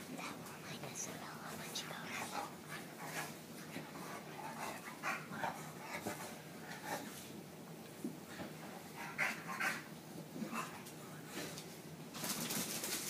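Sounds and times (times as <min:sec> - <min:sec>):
dog noises: 0:02.3 - 0:07.2, 0:08.9 - 0:11.0.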